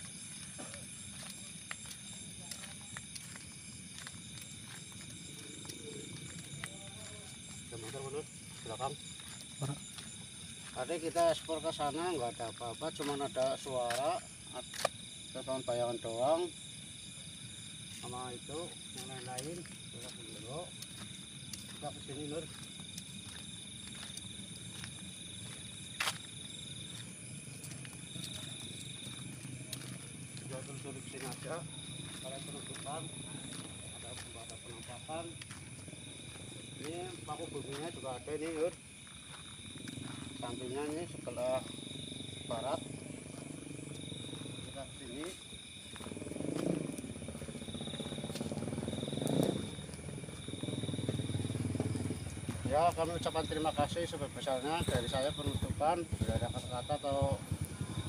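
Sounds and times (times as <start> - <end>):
night insects chirring: 0.0 - 58.0
motorcycle passing by: 39.8 - 58.0.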